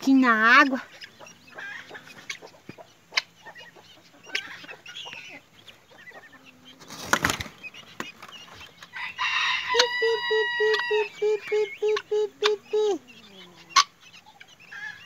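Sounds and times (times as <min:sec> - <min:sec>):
hens clucking: 0:00.0 - 0:15.0
faint chick peeps: 0:00.1 - 0:15.0
fowl scuffle: 0:00.5 - 0:12.6.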